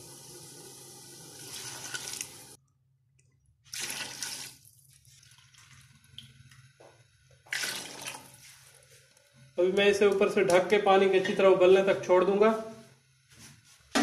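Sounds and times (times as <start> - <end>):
water poured with a splash: 1.4 - 2.4, 3.7 - 6.3, 7.5 - 8.4.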